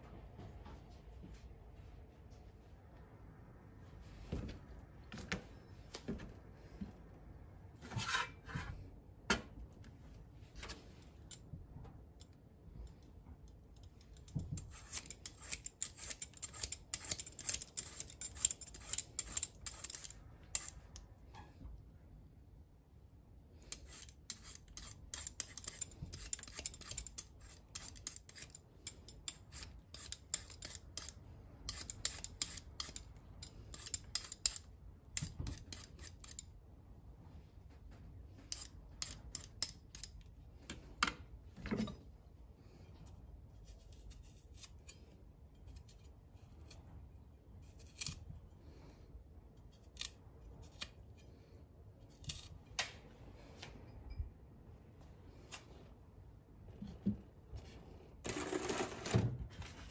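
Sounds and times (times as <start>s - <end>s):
peeler scraping potato skin: 14.1s - 21.0s, 23.6s - 33.1s, 33.7s - 36.5s, 38.5s - 40.2s, 47.6s - 48.3s, 52.1s - 52.6s.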